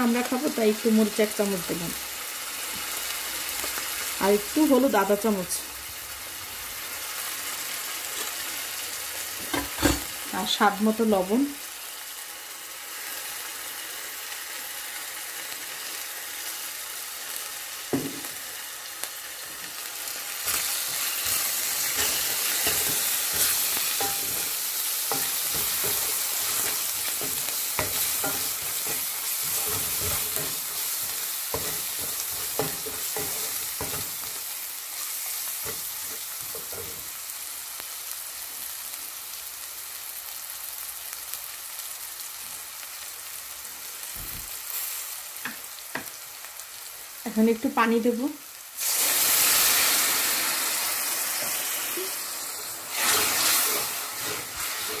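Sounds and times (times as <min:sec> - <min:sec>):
onions sizzling in oil: 0:00.0 - 0:55.0
wooden spoon scraping a pan: 0:20.5 - 0:34.4, 0:52.9 - 0:55.0.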